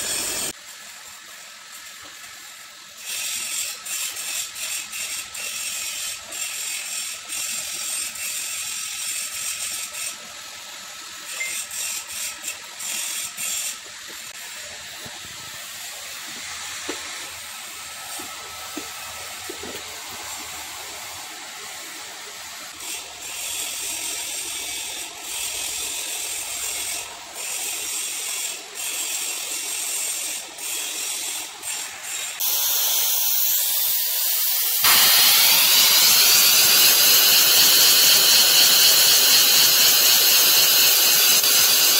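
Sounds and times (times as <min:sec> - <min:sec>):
lathe running: 0:00.0 - 0:00.6, 0:34.8 - 0:41.9
spray-welding torch hissing: 0:00.0 - 0:41.9
steady hiss: 0:00.0 - 0:41.9.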